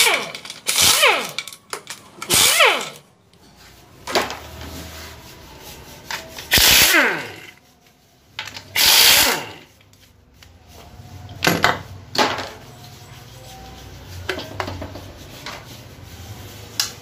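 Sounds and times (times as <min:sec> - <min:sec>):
impact wrench zipping: 0:00.0 - 0:03.1, 0:06.5 - 0:07.5, 0:08.7 - 0:09.7.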